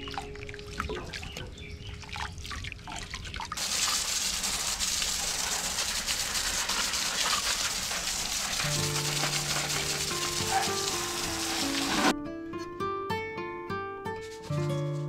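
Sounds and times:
hose nozzle spraying water: 3.6 - 12.1.

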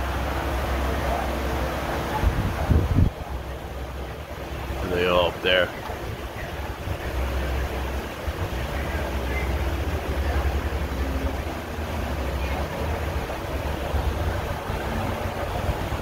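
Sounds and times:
faint voices: 0.0 - 16.0
wind buffeting microphone: 2.1 - 3.9, 5.7 - 16.0.

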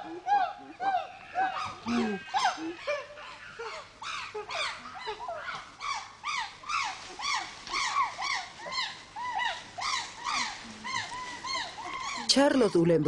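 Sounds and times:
chimpanzees pant-hooting: 0.0 - 12.3.

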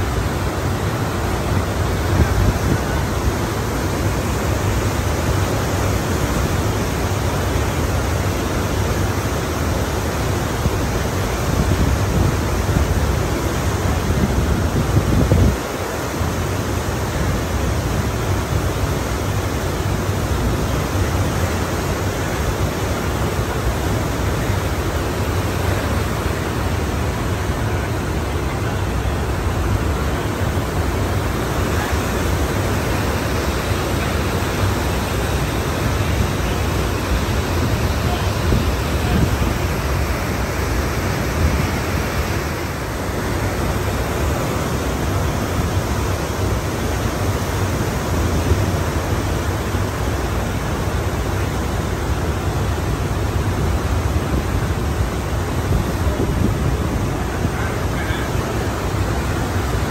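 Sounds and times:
ocean surf rushing: 0.0 - 59.9.

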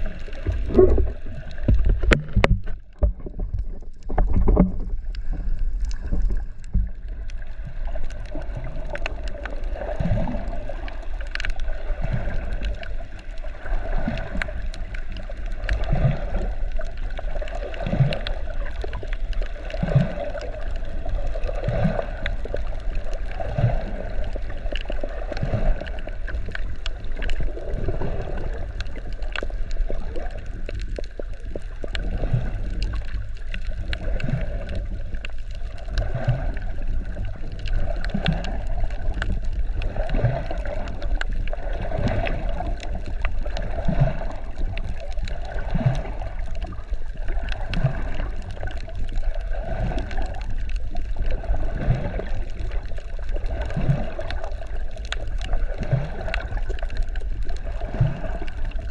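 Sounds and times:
moving water rumbling: 0.0 - 58.9
small clicks: 11.2 - 11.6.

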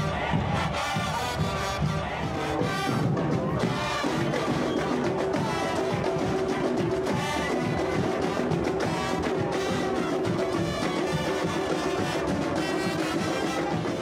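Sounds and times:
marching drums: 0.0 - 14.0
trumpets and brass: 0.0 - 14.0.

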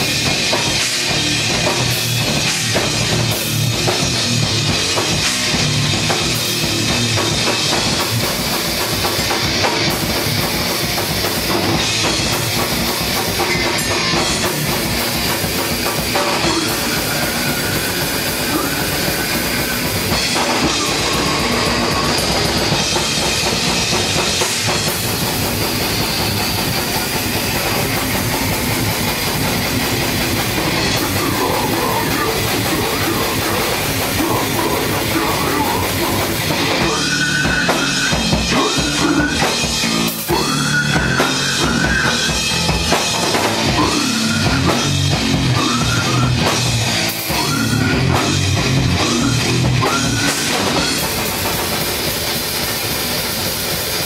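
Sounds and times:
electric guitars: 0.0 - 54.0
fast dense drumming: 0.0 - 54.0.

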